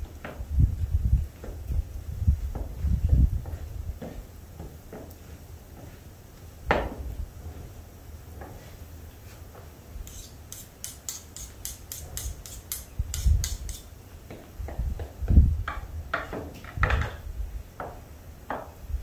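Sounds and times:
knife scraping pestle: 10.0s - 13.9s
pestle knocking in bowl: 10.5s - 13.8s.

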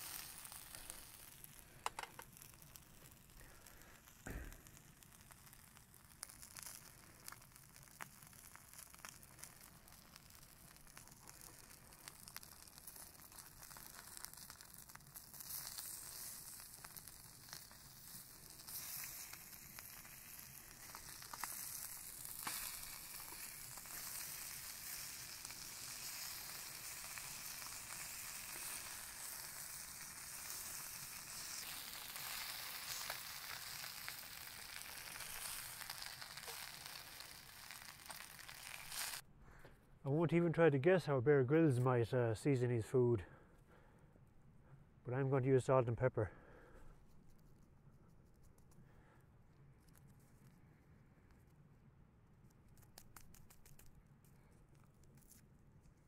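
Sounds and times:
fish sizzling in a pan: 0.0s - 39.2s.

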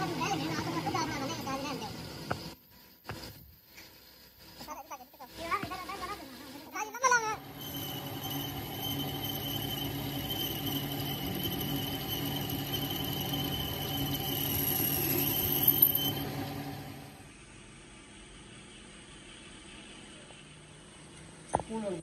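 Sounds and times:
machine tool squealing: 7.4s - 16.2s.

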